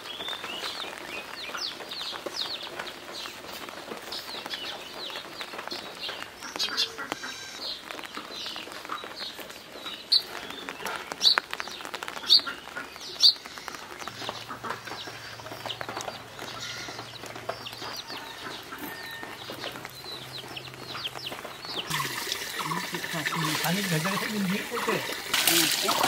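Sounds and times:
chicks peeping: 0:00.1 - 0:26.0
chickens clucking: 0:12.1 - 0:26.0
rushing water: 0:21.8 - 0:26.0.

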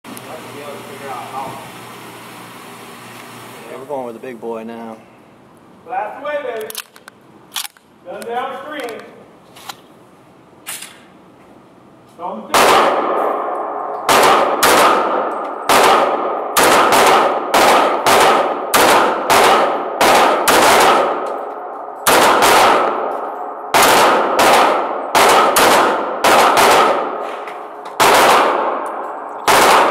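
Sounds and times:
pistol shots echoing indoors: 0:12.5 - 0:29.9.

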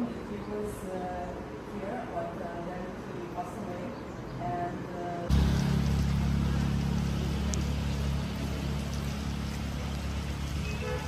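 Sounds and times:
low rumble: 0:05.3 - 0:10.5
rain pouring: 0:05.3 - 0:11.0.

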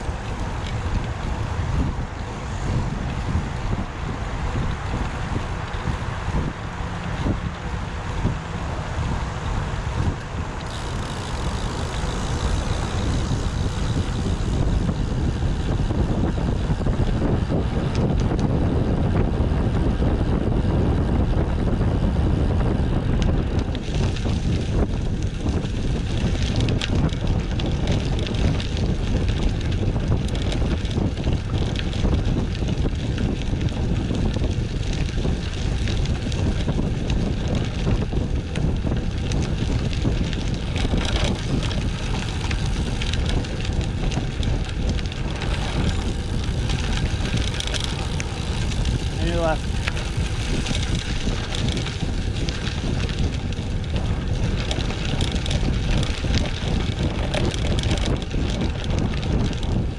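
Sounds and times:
tyre and road noise: 0:00.0 - 0:59.9
wind buffeting microphone: 0:00.0 - 0:59.9.

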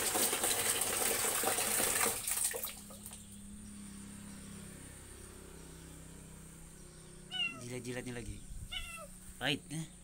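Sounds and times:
water running and splashing: 0:00.0 - 0:03.2.

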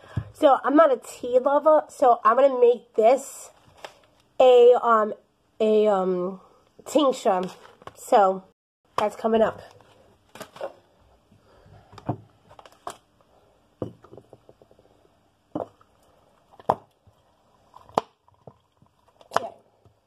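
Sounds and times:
glass jar knocks and clicks: 0:13.8 - 0:14.7.

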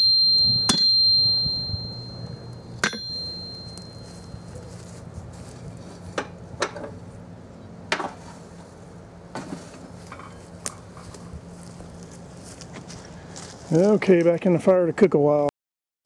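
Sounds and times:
low hum: 0:00.0 - 0:13.7
light metallic clanks: 0:00.6 - 0:04.2.

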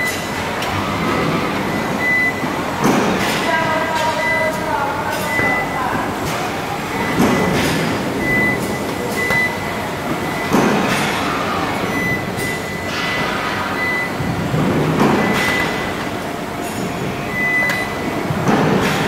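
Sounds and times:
factory machinery running: 0:00.0 - 0:19.0
high electronic beep: 0:01.7 - 0:02.5, 0:04.0 - 0:04.6, 0:05.2 - 0:06.0, 0:08.2 - 0:11.0, 0:11.8 - 0:14.3, 0:15.1 - 0:15.9, 0:17.1 - 0:18.0.

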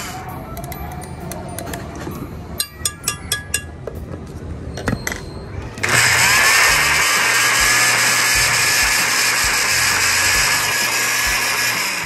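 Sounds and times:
electric blender motor running: 0:05.8 - 0:12.0.

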